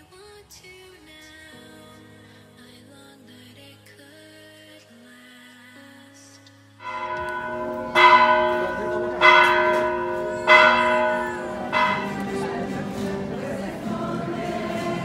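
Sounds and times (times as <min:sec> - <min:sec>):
church bell tolling: 0:06.8 - 0:13.4.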